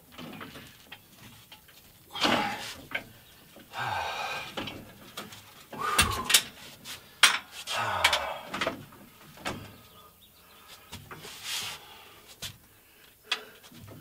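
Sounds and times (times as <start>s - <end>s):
metal clanks and clicks: 7.2s - 8.8s.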